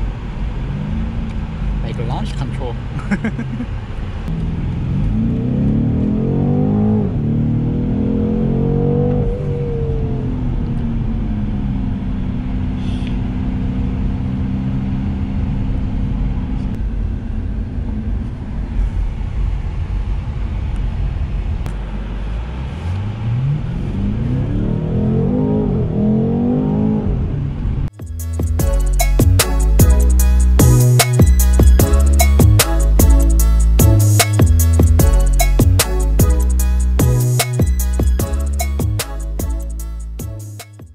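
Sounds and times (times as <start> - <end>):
car engine accelerating hard: 0.0 - 28.6.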